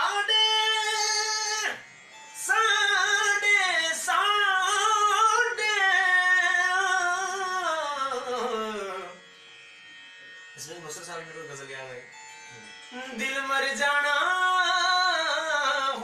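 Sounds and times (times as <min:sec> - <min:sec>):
man singing classical vocal phrase: 0:02.4 - 0:09.2, 0:13.2 - 0:16.0.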